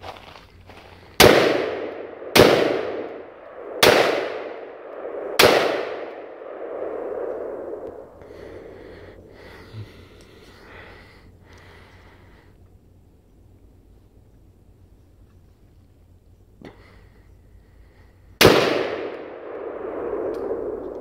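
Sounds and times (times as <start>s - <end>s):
rifle shots with echo: 1.2s - 6.7s, 18.4s - 21.0s.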